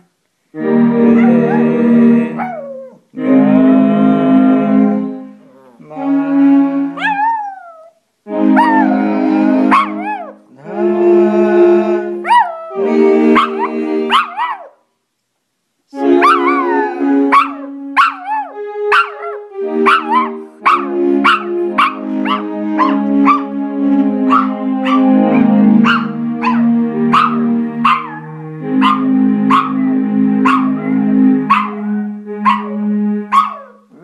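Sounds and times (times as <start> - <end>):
electronic keyboard notes: 0.6 - 14.6, 15.9 - 34.0
dog howling: 7.0 - 8.0, 8.6 - 10.4, 24.3 - 34.0.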